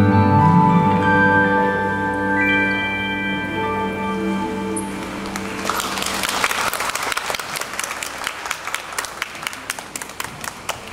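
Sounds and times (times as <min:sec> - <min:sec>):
backing music chord: 0:00.0 - 0:05.8
audience applause: 0:05.0 - 0:10.9.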